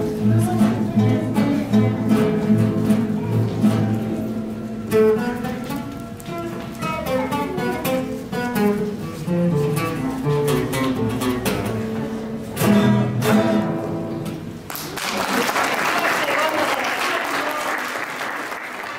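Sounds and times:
acoustic guitars playing melody: 0.0 - 14.7
loud strummed guitar chords: 7.2 - 14.6
audience applause: 14.7 - 18.9.

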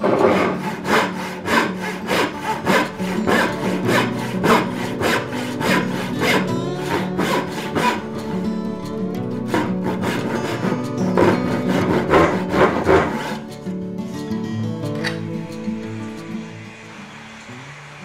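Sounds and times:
hand saw cutting wood: 0.0 - 8.2, 9.5 - 13.6.

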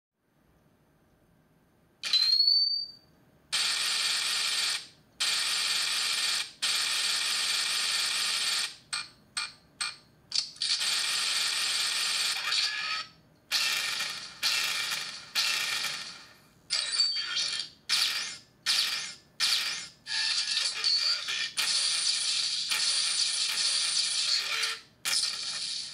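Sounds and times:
toy gun rattling firing bursts: 3.6 - 8.9, 10.4 - 12.8, 13.5 - 16.3, 21.5 - 25.9.

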